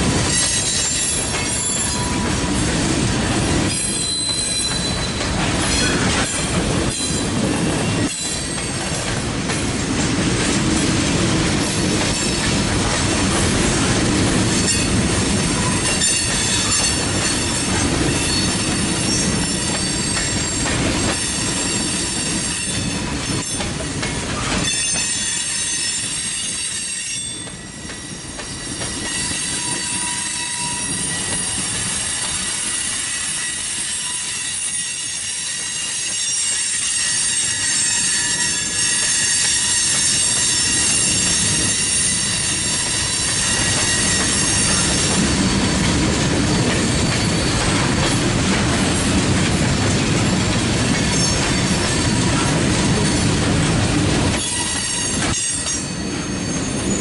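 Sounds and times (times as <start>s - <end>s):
train wheels rumbling on rails: 0.0s - 57.0s
high-pitched wheel squeal: 3.8s - 6.0s, 28.5s - 45.6s.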